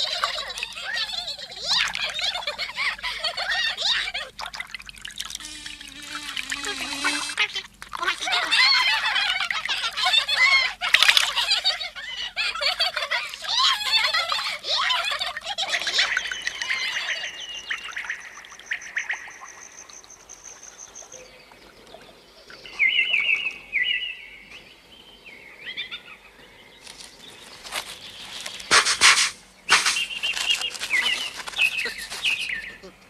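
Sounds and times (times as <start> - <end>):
high chirps and twitters: 15.9 - 21.3
scratchy digging bursts: 27.6 - 32.6.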